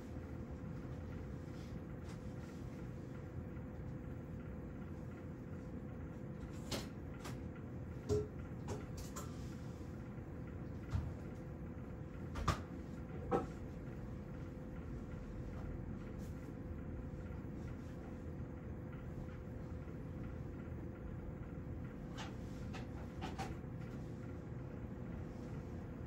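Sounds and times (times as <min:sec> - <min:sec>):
faint steady whine: 0:00.0 - 0:26.0
low steady hum: 0:00.0 - 0:26.0
small knocks and clicks: 0:22.1 - 0:24.0.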